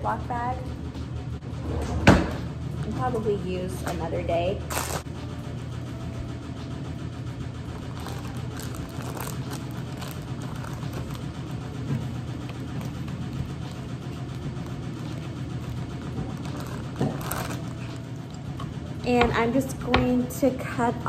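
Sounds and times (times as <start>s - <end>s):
low machine hum: 0.0s - 21.0s
plastic bag crinkling: 4.7s - 5.0s, 7.7s - 11.5s, 14.2s - 18.1s.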